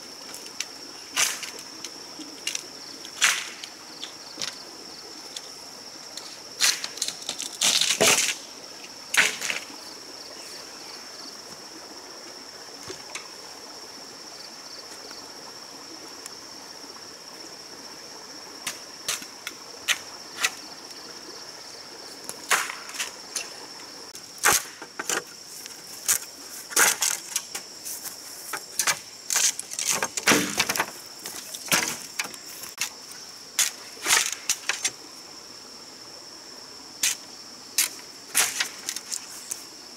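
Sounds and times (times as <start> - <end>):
machete knocking bamboo: 30.2 - 30.8.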